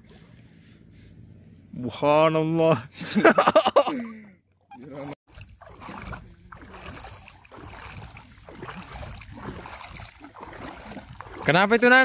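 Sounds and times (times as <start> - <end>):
water sloshing around wading legs: 4.7 - 12.0
wind on microphone: 5.4 - 11.5.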